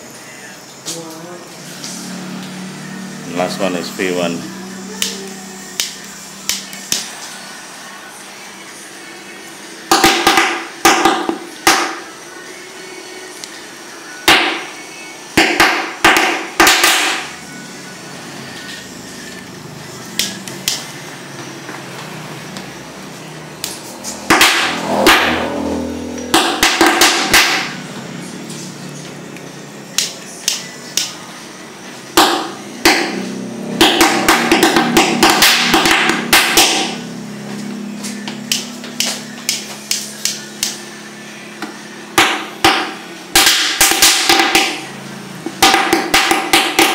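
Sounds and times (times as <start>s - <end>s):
steady low hum: 0.0s - 9.9s, 17.2s - 43.4s.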